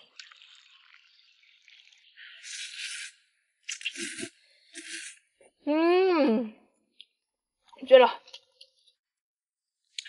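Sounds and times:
noodles slurped: 0:02.3 - 0:05.3.

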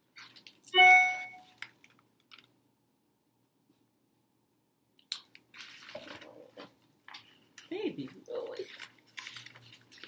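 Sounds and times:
ringing tone: 0:00.8 - 0:01.5
paper page turning: 0:05.5 - 0:07.3, 0:08.3 - 0:10.0.

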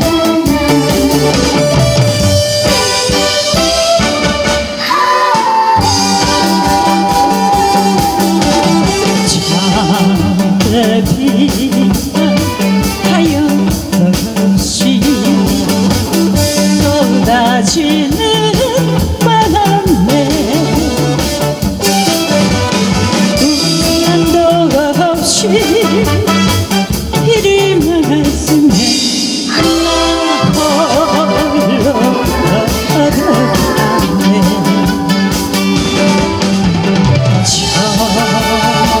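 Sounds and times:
woman singing into a microphone: 0:04.8 - 0:15.9, 0:16.6 - 0:21.2, 0:23.4 - 0:26.5, 0:27.1 - 0:36.2, 0:37.4 - 0:39.0
backing music with steady beat: 0:05.8 - 0:39.0.

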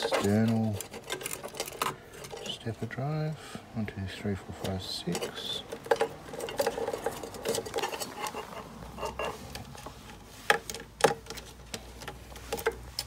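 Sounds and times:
wires and connectors clicking: 0:00.0 - 0:02.6.

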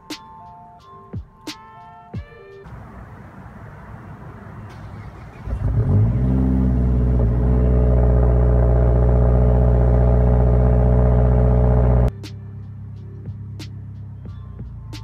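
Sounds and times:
car engine starting and idling: 0:02.7 - 0:14.3.

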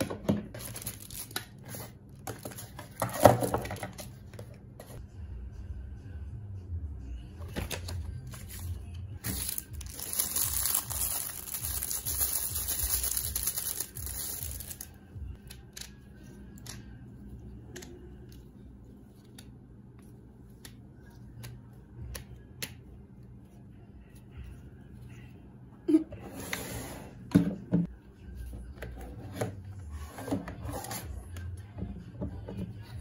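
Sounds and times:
packaging crinkling and tearing: 0:00.5 - 0:01.6, 0:09.2 - 0:15.0.

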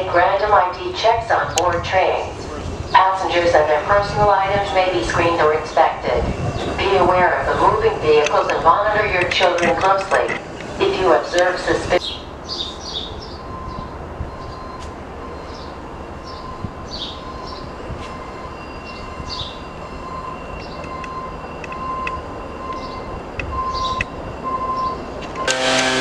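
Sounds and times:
birds chirping: 0:00.0 - 0:25.2
distant train rumble: 0:00.0 - 0:25.9
high ringing tone: 0:13.5 - 0:26.0.

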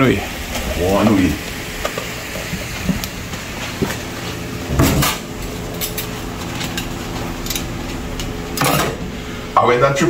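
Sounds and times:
steady hiss: 0:00.0 - 0:04.5.

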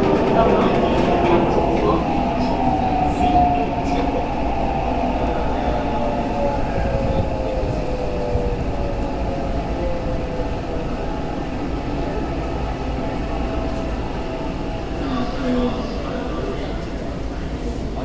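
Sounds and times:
train wheels rumbling: 0:00.0 - 0:18.0.

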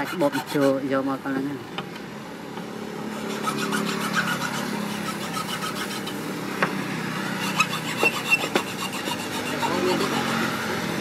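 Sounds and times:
metal file rasping on wood: 0:00.0 - 0:01.1, 0:03.1 - 0:06.3, 0:07.4 - 0:11.0
engine hum: 0:01.1 - 0:11.0.

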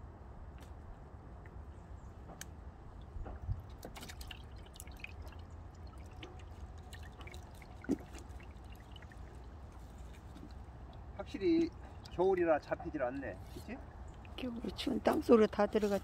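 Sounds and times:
water dripping and trickling: 0:02.9 - 0:16.0
fish splashing into water: 0:03.5 - 0:12.2.

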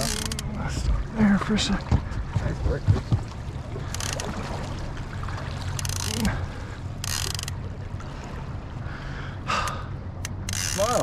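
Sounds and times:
fishing reel ratcheting: 0:00.0 - 0:00.5, 0:03.9 - 0:04.2, 0:05.8 - 0:06.3, 0:07.0 - 0:07.6, 0:10.2 - 0:11.0
boat engine humming: 0:00.0 - 0:11.0.

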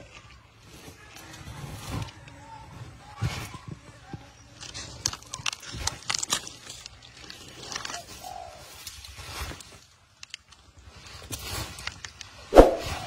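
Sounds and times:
animal crunching and tearing carcass: 0:03.2 - 0:12.4.

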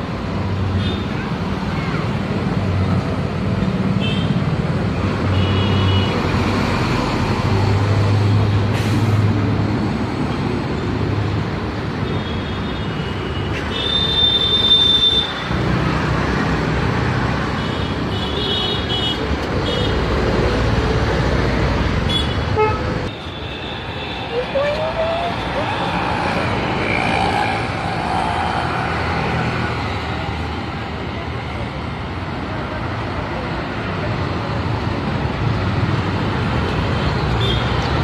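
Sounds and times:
busy road traffic: 0:00.0 - 0:38.0.

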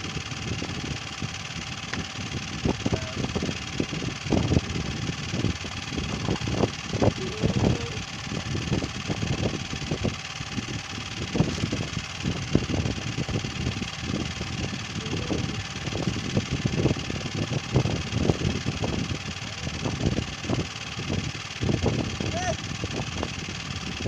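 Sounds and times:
small engine running: 0:00.0 - 0:24.0.

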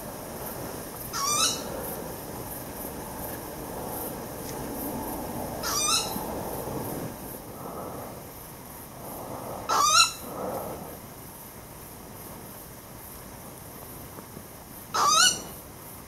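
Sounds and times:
owl calling: 0:01.1 - 0:01.8, 0:05.6 - 0:06.2, 0:09.7 - 0:10.5, 0:15.0 - 0:15.6.

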